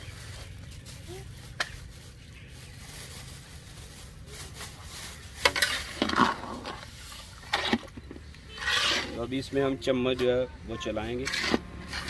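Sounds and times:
metal spatula scraping iron pan: 0:05.4 - 0:09.3, 0:11.2 - 0:12.0.

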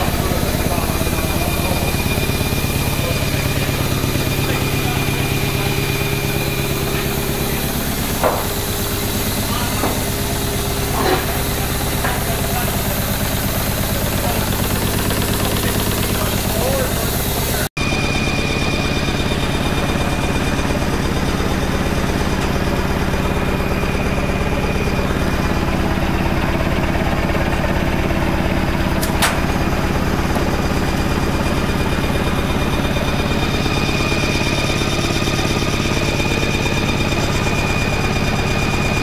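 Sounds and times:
steam engine beating: 0:00.0 - 0:39.0
sharp click: 0:29.0 - 0:29.4.

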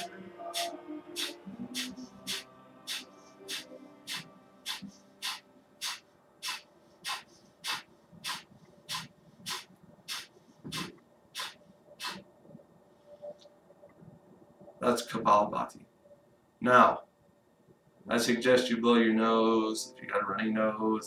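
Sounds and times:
man forcefully exhaling through nose: 0:01.2 - 0:12.2.

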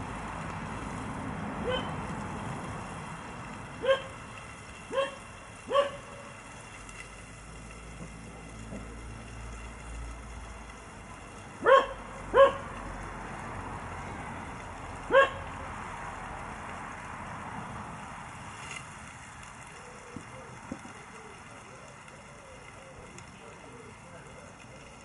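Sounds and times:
dog barking: 0:01.6 - 0:01.9, 0:03.8 - 0:04.1, 0:04.9 - 0:06.1, 0:11.6 - 0:12.7, 0:15.1 - 0:15.4.

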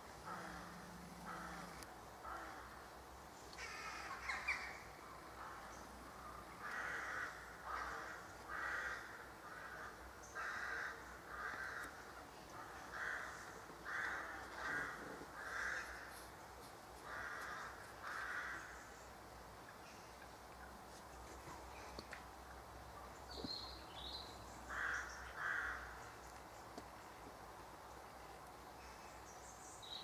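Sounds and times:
crows cawing: 0:00.3 - 0:02.7, 0:06.6 - 0:12.0, 0:12.8 - 0:16.3, 0:17.0 - 0:18.8, 0:24.7 - 0:26.0.

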